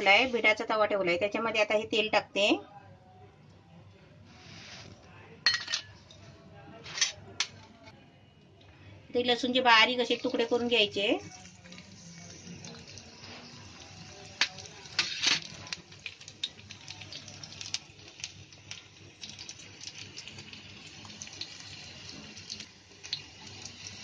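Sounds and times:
garlic sizzling in hot oil: 9.4s - 24.0s.

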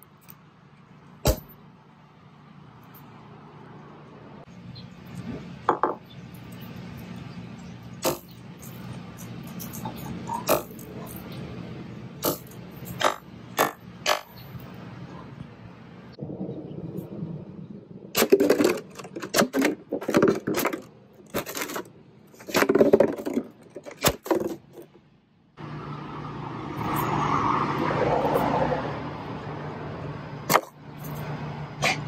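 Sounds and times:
low hum: 0.0s - 22.5s.

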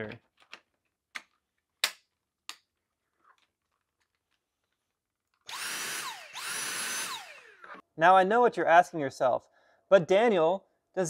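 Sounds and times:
cordless vacuum motor whining: 5.5s - 7.8s.

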